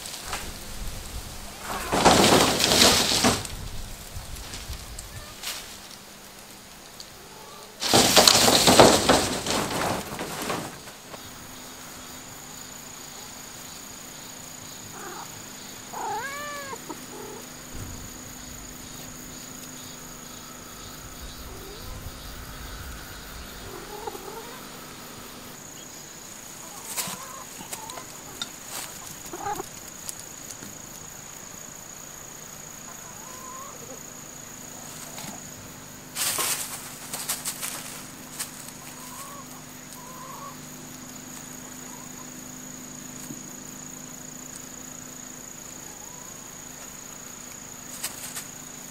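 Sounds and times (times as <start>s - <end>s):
loud rustling: 0.0s - 6.5s, 7.8s - 11.6s, 23.4s - 30.3s, 34.9s - 39.2s, 47.8s - 48.6s
cat meowing: 15.9s - 17.4s.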